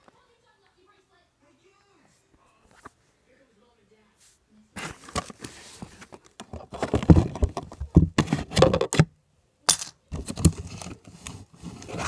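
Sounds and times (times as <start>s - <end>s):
cardboard box knocks and rattles: 6.6s - 9.0s.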